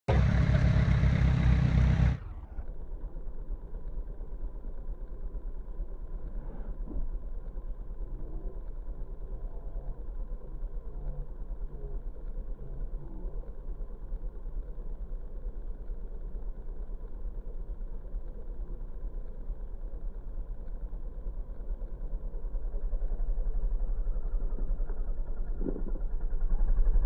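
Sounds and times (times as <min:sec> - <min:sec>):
car engine revving then idling: 0:00.1 - 0:02.7.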